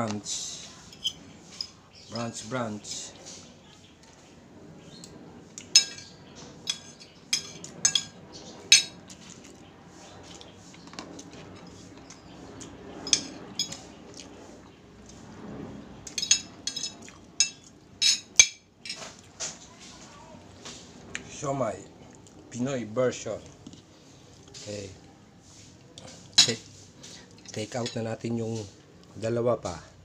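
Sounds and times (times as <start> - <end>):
cutlery clinking on a plate: 5.7 - 6.1, 6.7 - 9.0, 13.1 - 13.8, 16.1 - 19.1.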